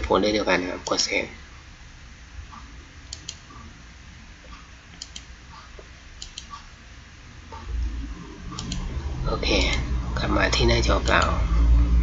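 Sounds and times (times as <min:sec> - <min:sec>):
low steady hum: 0:00.0 - 0:12.0
computer mouse clicks: 0:02.6 - 0:03.6, 0:04.9 - 0:05.3, 0:06.2 - 0:06.7, 0:08.5 - 0:09.0, 0:11.0 - 0:11.3.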